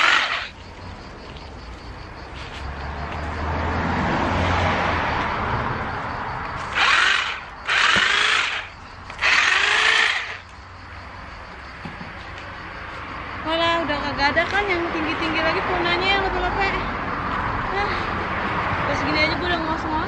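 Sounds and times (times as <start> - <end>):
electric hedge trimmer running: 0.0 - 0.5, 6.6 - 10.4.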